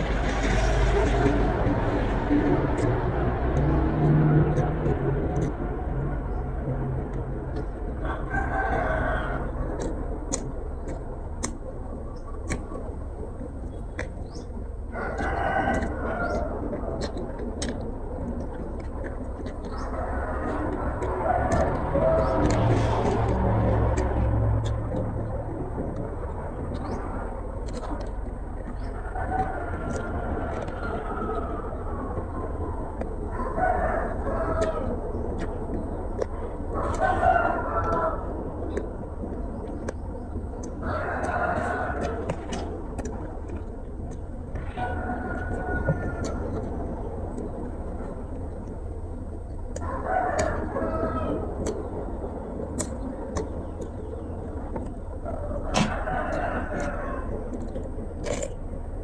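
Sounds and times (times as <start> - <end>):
faint clicks: 0.0 - 59.0
low background rumble: 0.0 - 59.0
rooster crowing: 8.0 - 9.6, 15.0 - 16.5, 33.3 - 34.9, 36.8 - 38.3, 44.6 - 46.6, 49.8 - 51.5, 55.7 - 57.3
sharp clicks: 49.4 - 58.8.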